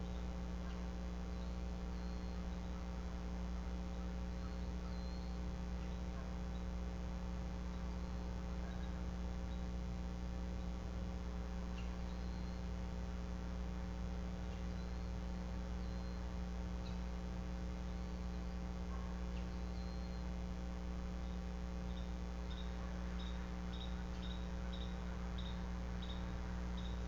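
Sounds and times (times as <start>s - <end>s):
faint high chirps: 0.0s - 2.8s, 4.0s - 6.8s, 11.7s - 12.7s, 15.8s - 17.1s, 18.2s - 20.4s, 21.2s - 27.0s
electrical mains hum: 0.0s - 27.0s.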